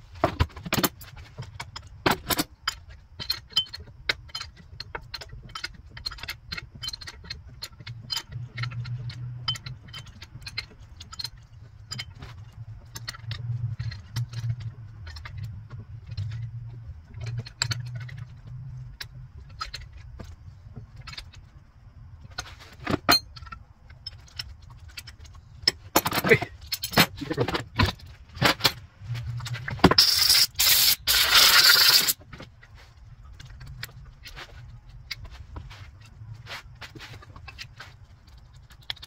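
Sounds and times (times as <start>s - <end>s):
low hum: 23.1s - 38.4s
hand tools clicking on metal: 29.9s - 32.2s.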